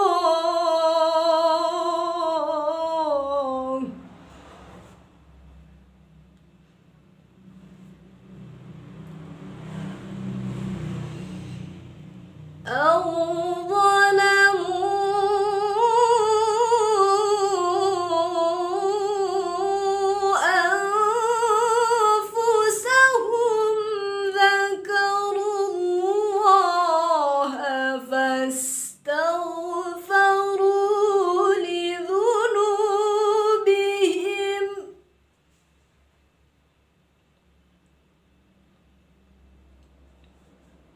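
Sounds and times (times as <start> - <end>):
woman chanting melodically: 0.0 - 4.0, 12.7 - 35.0.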